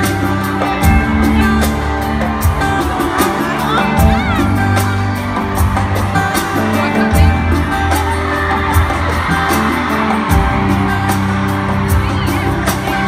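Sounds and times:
live band music over pa: 0:00.0 - 0:13.0.

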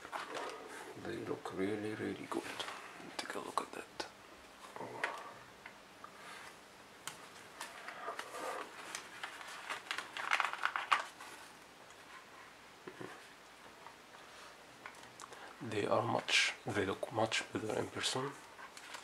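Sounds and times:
paper card rustling: 0:07.1 - 0:12.1.

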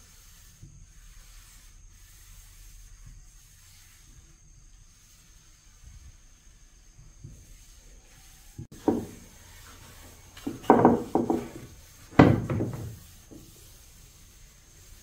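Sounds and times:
wood knocking and scraping on wood: 0:08.6 - 0:13.7.

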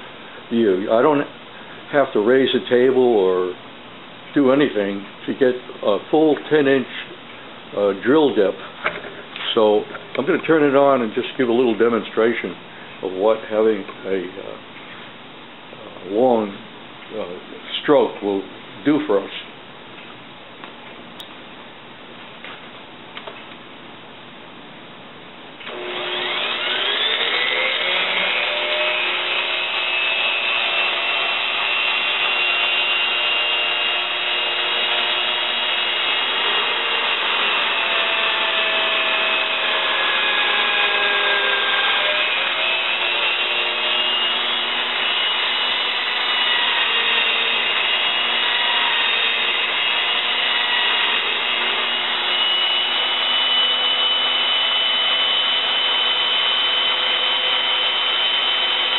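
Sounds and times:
drill bit boring into wood: 0:25.6 - 0:58.9
drill motor whining: 0:25.6 - 0:58.9.

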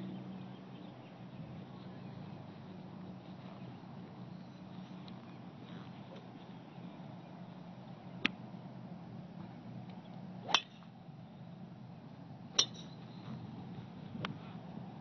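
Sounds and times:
low background noise: 0:00.0 - 0:15.0
golf club striking balls: 0:09.8 - 0:10.9, 0:12.5 - 0:13.6.

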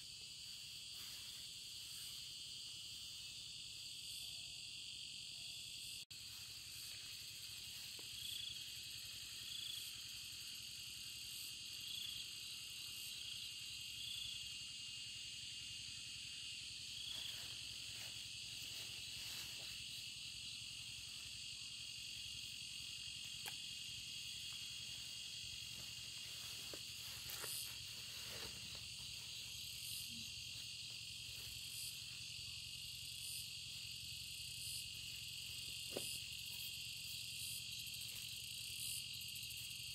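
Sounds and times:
insect chirps: 0:00.0 - 0:39.9
insects chorus: 0:00.0 - 0:39.9
soft rustles: 0:25.7 - 0:29.4.

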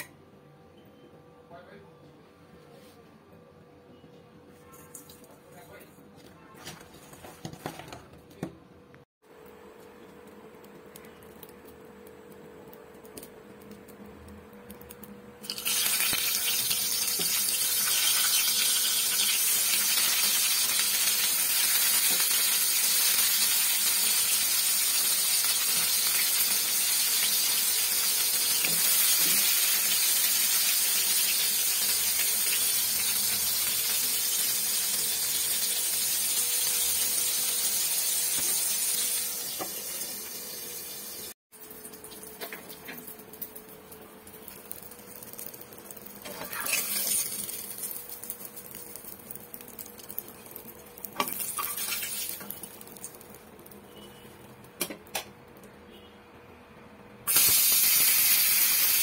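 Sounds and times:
eggplant sizzling in oil: 0:13.1 - 0:54.6, 0:57.3 - 0:59.0.

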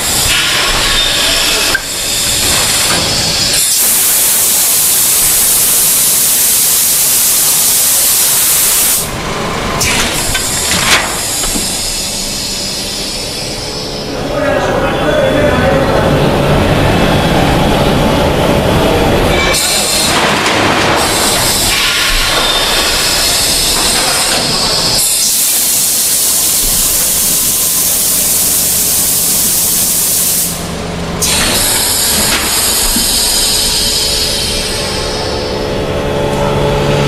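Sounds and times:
loud air hiss: 0:00.0 - 0:09.2, 0:09.8 - 0:14.2, 0:19.5 - 0:35.5
machine running: 0:00.0 - 0:37.0.

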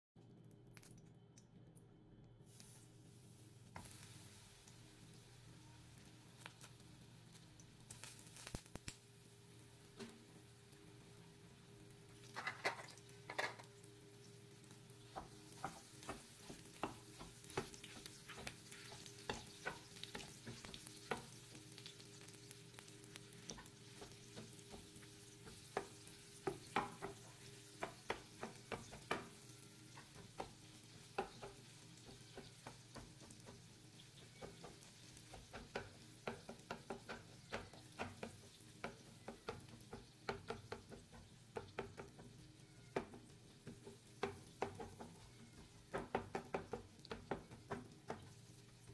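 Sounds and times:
meat sizzling in a pan: 0:02.5 - 0:48.9
spatula tapping and scraping pan: 0:12.2 - 0:13.7, 0:14.6 - 0:48.9.

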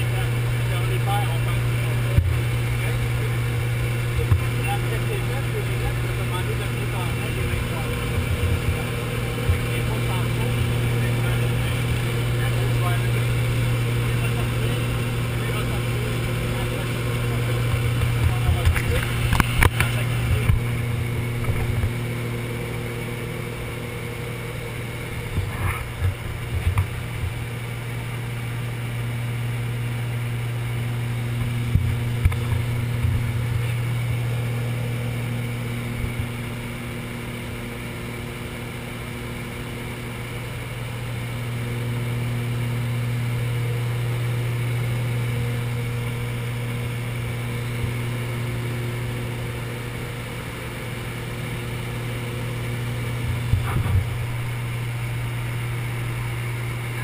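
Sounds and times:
aircraft engines droning: 0:00.0 - 0:57.0
low bumps: 0:53.1 - 0:55.2.

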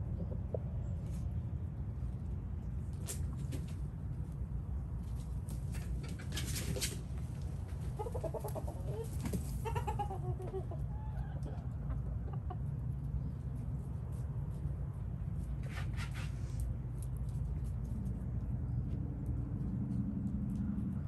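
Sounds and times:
chickens clucking: 0:00.0 - 0:01.5, 0:05.0 - 0:14.6
steady low rumble: 0:00.0 - 0:06.1, 0:10.6 - 0:15.6, 0:16.3 - 0:21.0.

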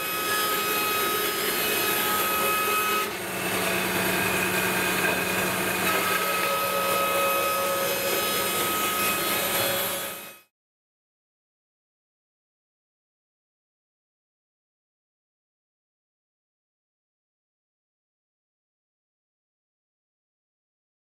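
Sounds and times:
band saw humming and whining: 0:00.0 - 0:10.5.

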